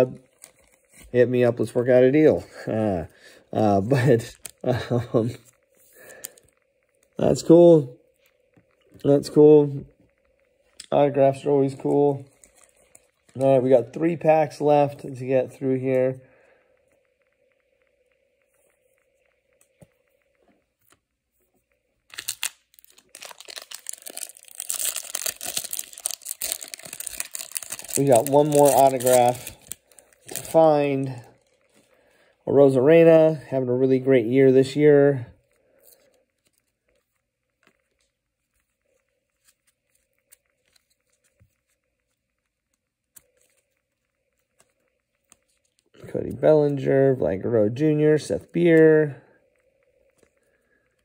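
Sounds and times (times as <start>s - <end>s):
foil wrapper tearing and crinkling: 22.1s - 30.7s.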